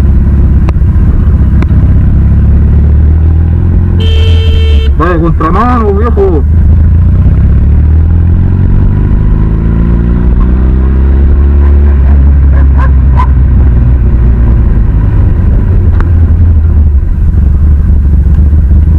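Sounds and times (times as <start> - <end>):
low wind rumble: 0.0 - 18.9
motorcycle engine accelerating: 0.0 - 18.9.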